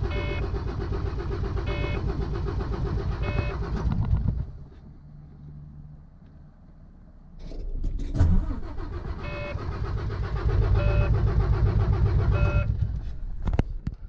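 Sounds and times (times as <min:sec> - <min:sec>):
diesel engine cranking on starter: 0:00.0 - 0:04.6, 0:07.4 - 0:14.0
dashboard warning chime beeping: 0:00.1 - 0:00.5, 0:03.2 - 0:03.7, 0:09.2 - 0:09.7, 0:10.8 - 0:11.2, 0:12.3 - 0:12.7.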